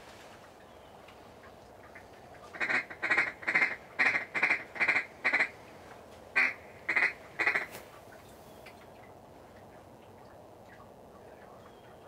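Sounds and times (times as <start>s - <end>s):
duck call quacks: 2.5s - 5.5s, 6.4s - 7.7s.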